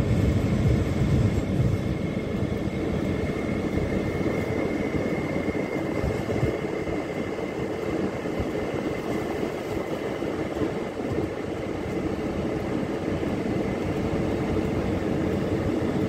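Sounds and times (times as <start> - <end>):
conveyor machine engine running: 0.0 - 16.0
wind buffeting microphone: 0.0 - 16.0.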